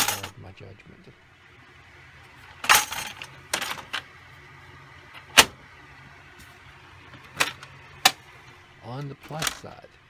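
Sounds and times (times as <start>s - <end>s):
plastic cassette clattering: 7.1s - 8.2s, 9.0s - 9.8s.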